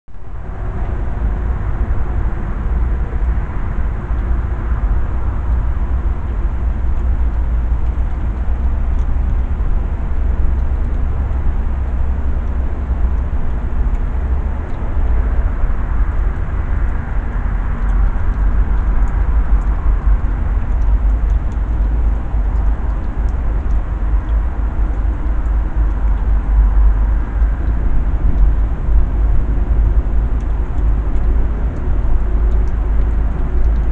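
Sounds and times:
low rumble: 0.1s - 33.9s
faint ticks: 7.0s - 9.5s, 10.2s - 15.1s, 29.3s - 33.9s.

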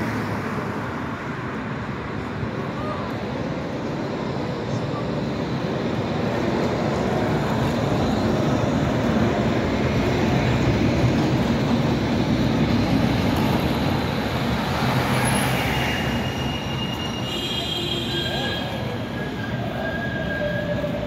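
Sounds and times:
tram wheels rumbling on rails: 0.0s - 21.0s
wheel squeal: 15.2s - 21.0s.

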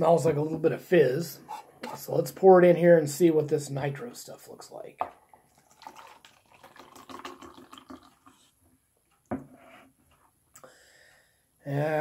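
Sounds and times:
cola pouring into a glass: 5.0s - 8.6s.

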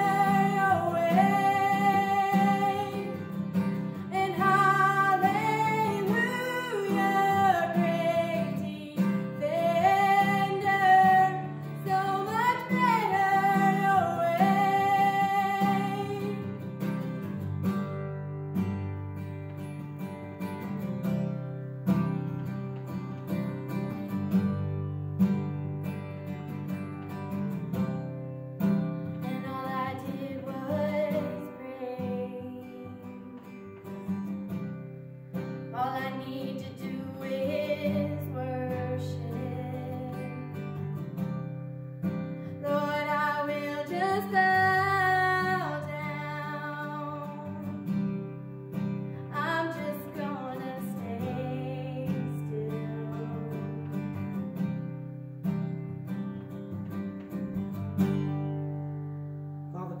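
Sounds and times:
woman singing: 0.0s - 17.0s, 29.1s - 34.2s, 35.7s - 41.1s, 42.5s - 48.3s, 49.2s - 54.4s
acoustic guitar strumming: 0.0s - 60.0s.

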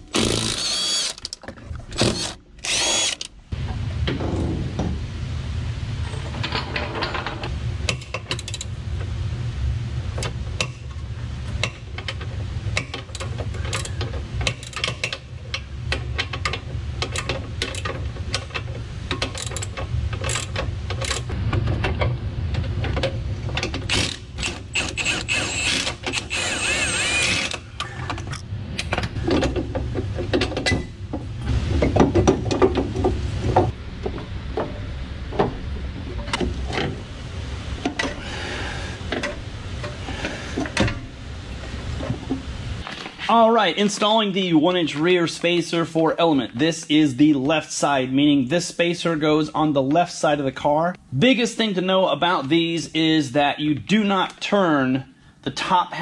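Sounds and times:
low hum: 0.0s - 42.9s
clinks of tools and metal: 6.0s - 8.7s, 11.5s - 25.1s
hand ratchet clicking: 23.9s - 27.6s.

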